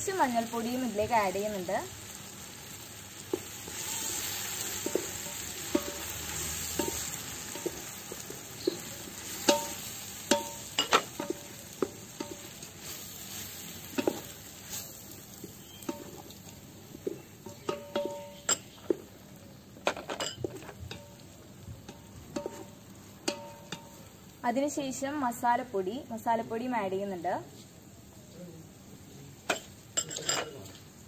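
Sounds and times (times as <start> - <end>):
masala sizzling in a pot: 0.0 - 31.0
wooden spoon knocking on steel pot: 4.8 - 6.2.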